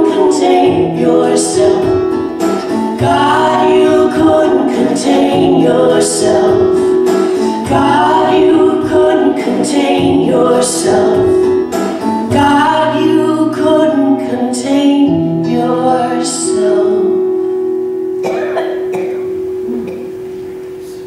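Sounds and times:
woman singing: 0.0 - 2.2, 2.9 - 11.6, 12.2 - 17.3
strummed acoustic guitar: 0.0 - 21.0.

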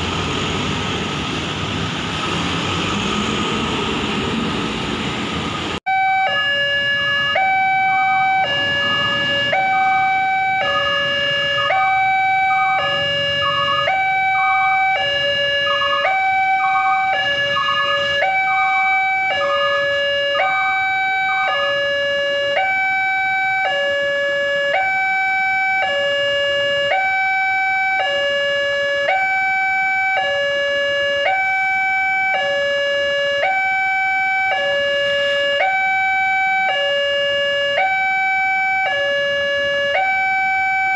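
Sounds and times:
two-tone electronic crossing alarm: 5.9 - 40.9.

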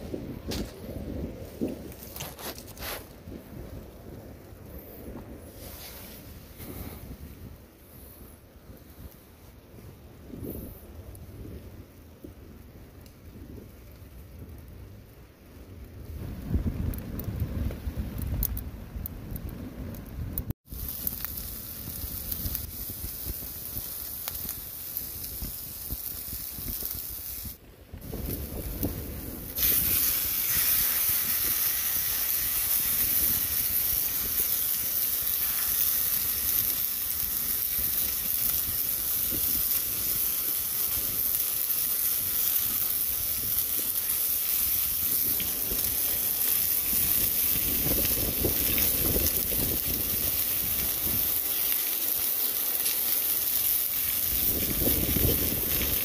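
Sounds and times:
onions sizzling in a frying pan: 20.6 - 56.0
steak sizzling loudly: 20.7 - 27.6, 29.4 - 56.0.

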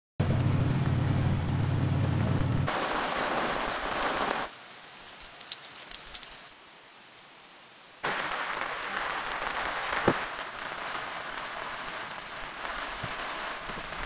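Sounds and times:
low rumble: 0.2 - 2.7
light ticks of rain: 0.3 - 14.0
heavy rain falling: 0.8 - 6.6, 8.0 - 14.0.

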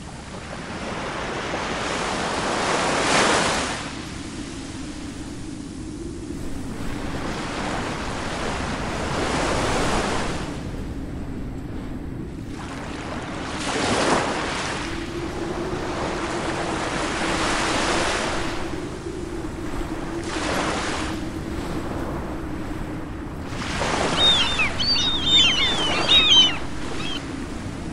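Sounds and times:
ocean waves breaking: 19.7 - 27.9.

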